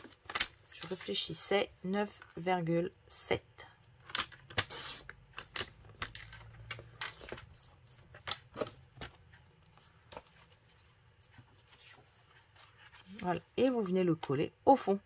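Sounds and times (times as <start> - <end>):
cardstock rustling: 0.0 - 1.4, 4.6 - 14.2.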